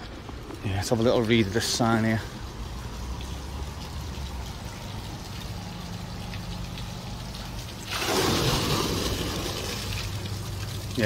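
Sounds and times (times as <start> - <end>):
low steady hum: 0.0 - 11.0
rush of splashing water: 0.0 - 11.0
water trickling: 0.0 - 11.0.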